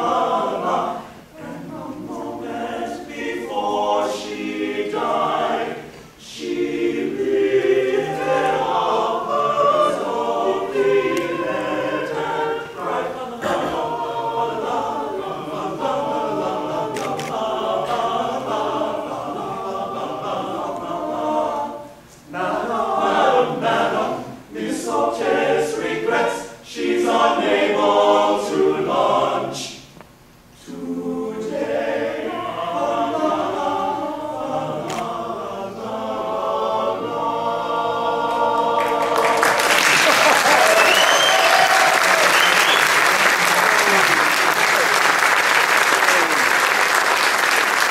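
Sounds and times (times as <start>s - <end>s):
men's chorus singing: 0.0s - 29.8s, 30.6s - 42.8s.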